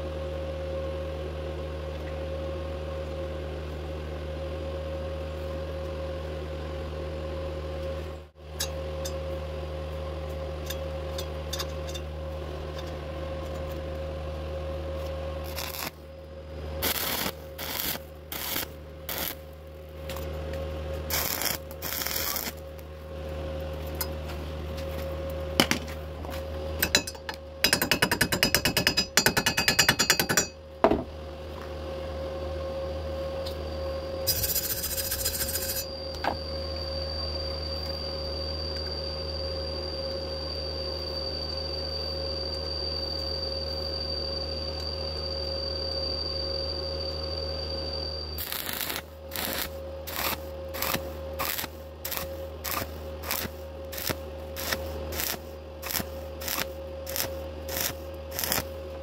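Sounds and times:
steady hum with high whine: 0:00.0 - 0:59.0
welding arc crackling: 0:15.4 - 0:16.0, 0:16.8 - 0:19.5, 0:21.1 - 0:22.8, 0:34.3 - 0:35.8, 0:48.4 - 0:58.8.

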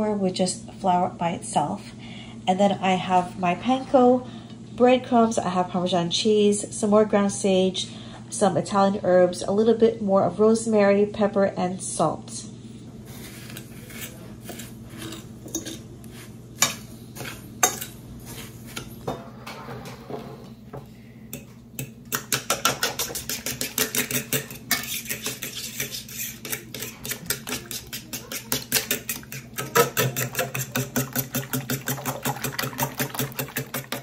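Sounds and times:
brisk stirring in bowl: 0:13.1 - 0:18.9, 0:21.3 - 0:34.0
utensil clinking against bowl: 0:21.3 - 0:34.0.

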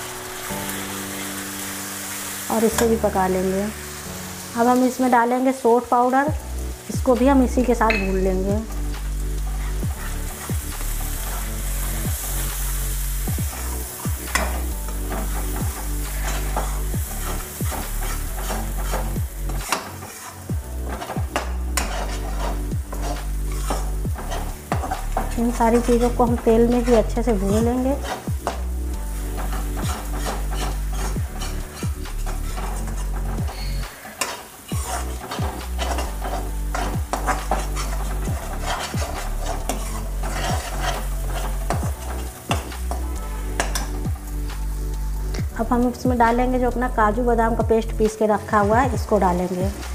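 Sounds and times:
spice paste sizzling in oil: 0:00.0 - 0:49.9
spoon scraping metal pan: 0:13.5 - 0:44.0.

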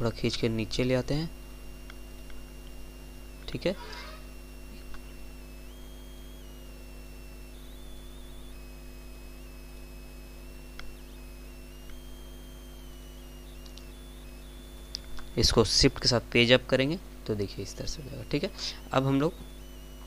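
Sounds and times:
electrical mains hum: 0:00.0 - 0:20.0
high electronic whine: 0:00.0 - 0:20.0
faint mouse clicks: 0:13.6 - 0:13.9.

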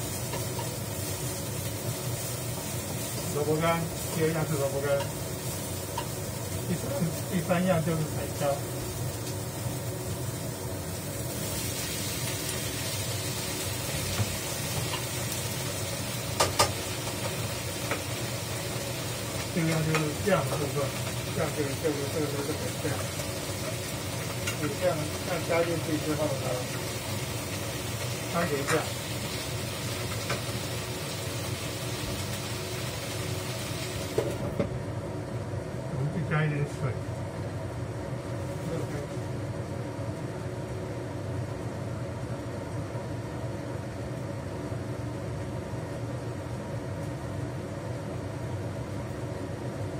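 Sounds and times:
peppers sizzling in oiled pan: 0:00.0 - 0:34.6.

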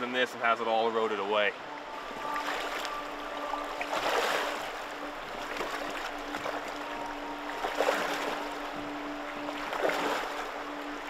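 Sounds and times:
river current running: 0:00.0 - 0:11.0
legs splashing through water: 0:02.0 - 0:11.0.

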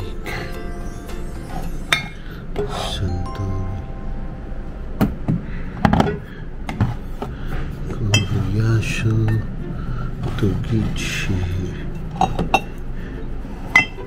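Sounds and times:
glass bottles clinking: 0:08.1 - 0:08.4, 0:13.7 - 0:14.0.

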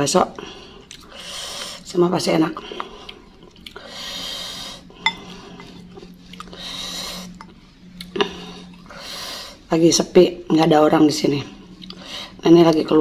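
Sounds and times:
utensil clinking against bowl: 0:05.0 - 0:05.8.

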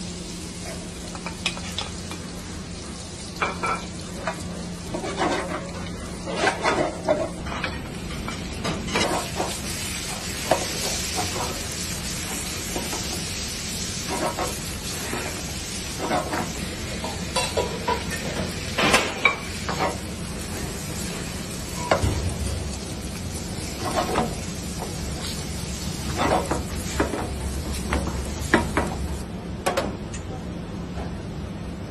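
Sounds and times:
squid sizzling in hot oil: 0:00.0 - 0:29.2
wooden spoon scraping a pan: 0:04.9 - 0:07.4, 0:14.0 - 0:16.6, 0:23.6 - 0:24.4.

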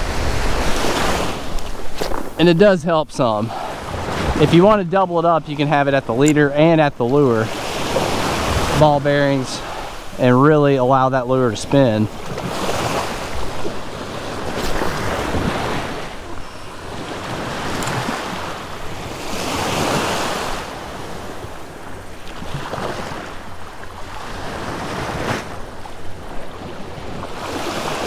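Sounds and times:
wind rumbling on microphone: 0:00.0 - 0:10.2
small waves breaking: 0:00.0 - 0:28.0.

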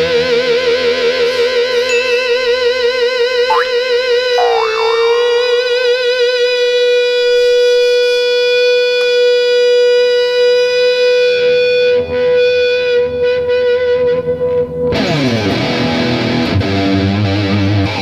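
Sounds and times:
sustained electric guitar note: 0:04.4 - 0:06.0.

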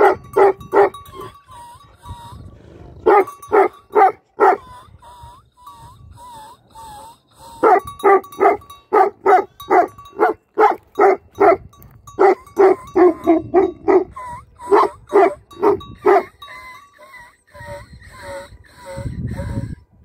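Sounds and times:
dog barking: 0:00.0 - 0:01.0, 0:03.0 - 0:04.6, 0:07.6 - 0:11.6
dog whining: 0:12.2 - 0:19.8.

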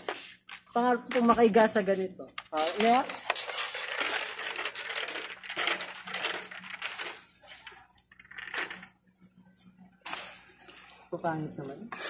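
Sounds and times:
plastic rustling and rattling: 0:00.0 - 0:09.0.

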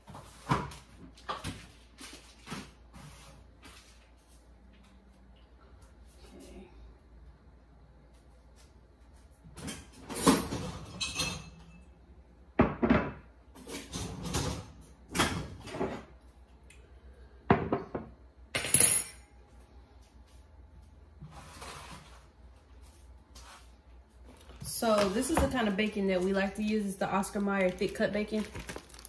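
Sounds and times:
dishware clinking: 0:10.8 - 0:11.8.

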